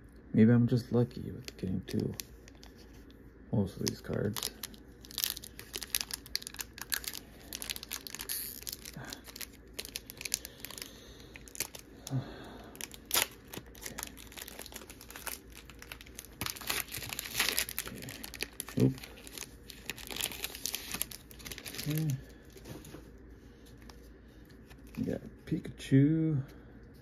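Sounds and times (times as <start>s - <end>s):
foil wrapper crinkling: 1.3s - 2.9s, 3.6s - 23.0s.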